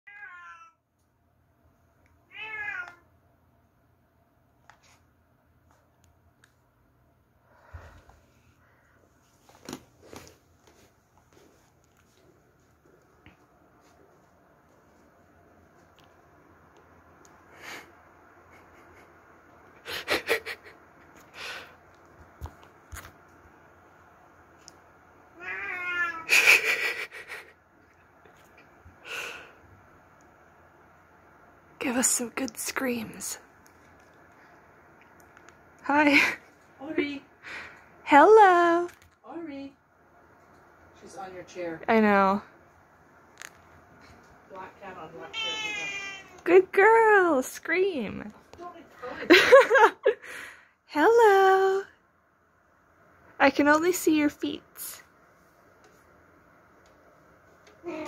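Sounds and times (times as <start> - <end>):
cat meowing: 0.1 - 0.8, 2.3 - 3.1, 25.4 - 26.3, 45.3 - 46.4.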